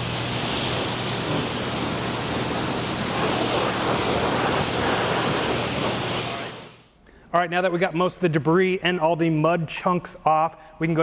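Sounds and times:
pressure washer spray hissing: 0.0s - 6.9s.

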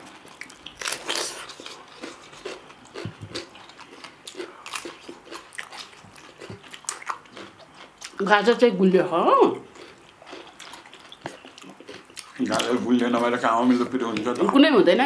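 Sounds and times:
crisp crunches of chewing radish: 0.1s - 8.2s.

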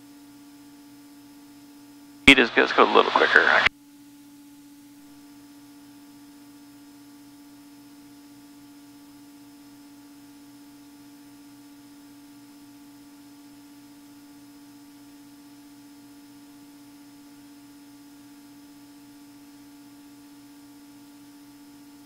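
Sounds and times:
airplane engine and propeller drone: 2.3s - 3.7s.

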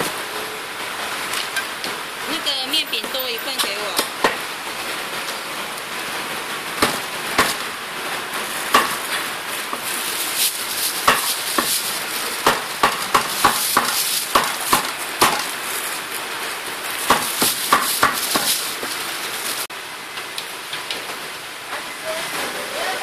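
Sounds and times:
plastic bag rustling: 7.0s - 19.7s.

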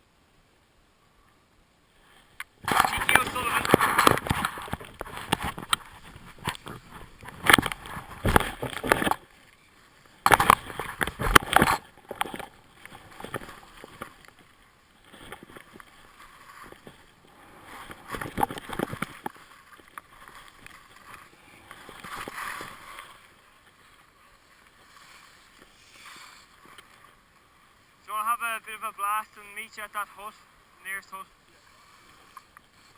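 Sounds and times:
skis scraping over snow: 2.6s - 11.9s.

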